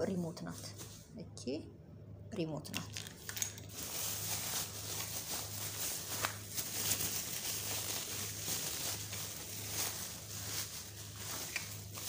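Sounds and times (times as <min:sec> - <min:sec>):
low steady hum: 0:00.0 - 0:12.0
rustling on fabric: 0:00.4 - 0:01.2, 0:03.7 - 0:12.0.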